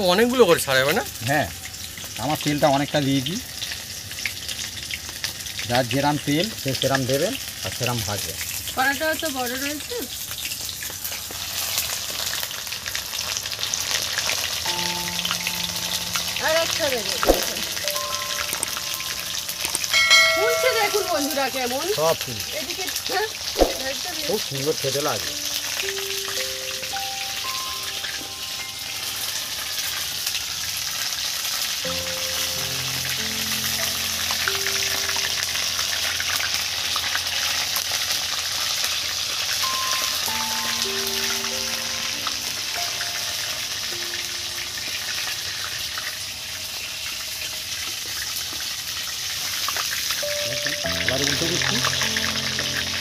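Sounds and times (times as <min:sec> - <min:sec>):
fish deep-frying in oil: 0:00.0 - 0:53.0
soft background music: 0:14.2 - 0:53.0.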